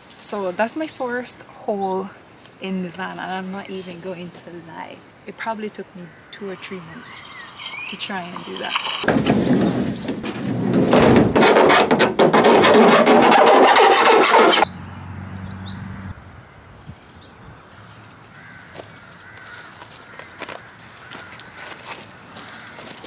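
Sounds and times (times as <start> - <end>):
rubbing: 6.9 - 14.6
harsh rasping of metal: 11.4 - 14.6.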